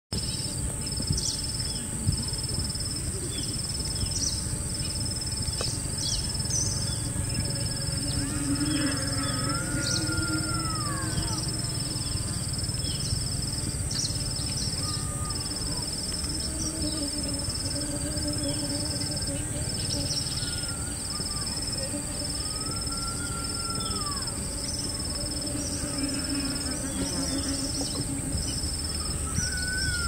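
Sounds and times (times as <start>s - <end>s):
steady high hiss: 0.2s - 30.0s
rising and falling bird call: 6.0s - 13.2s, 14.0s - 17.1s, 19.8s - 30.0s.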